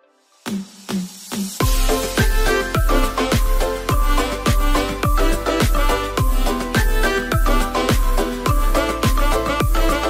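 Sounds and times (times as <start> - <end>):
deep kick drum: 1.6 - 9.9
held chords: 1.6 - 10.0.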